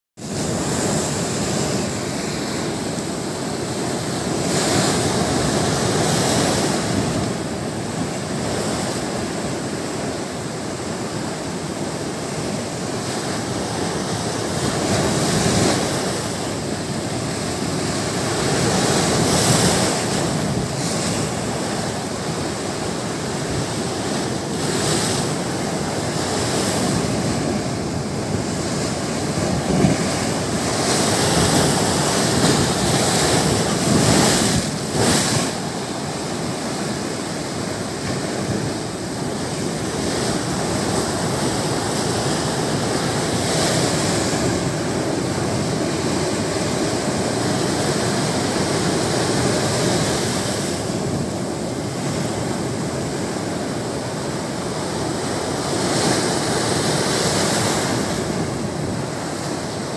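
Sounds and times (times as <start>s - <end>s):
surf breaking on seawall: 14.0s - 53.4s.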